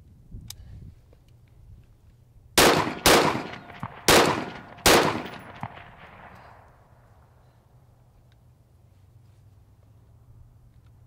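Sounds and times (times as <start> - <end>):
rifle shots with echo: 2.6 - 7.0.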